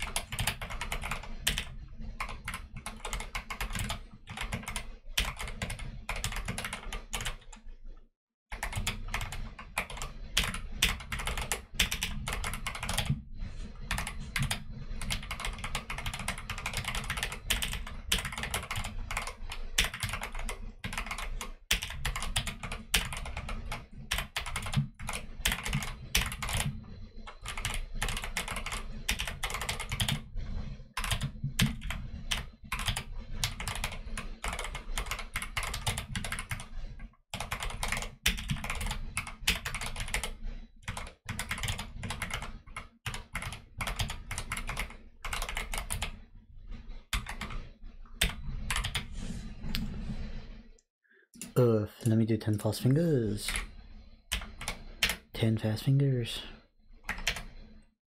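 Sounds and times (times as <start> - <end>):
mechanical keyboard typing: 0.0 - 7.6, 8.5 - 13.2, 13.9 - 26.7, 27.3 - 30.3, 31.0 - 36.7, 37.4 - 46.2, 47.2 - 47.6, 48.2 - 49.1, 53.5 - 53.7, 54.3 - 55.4, 57.1 - 57.5.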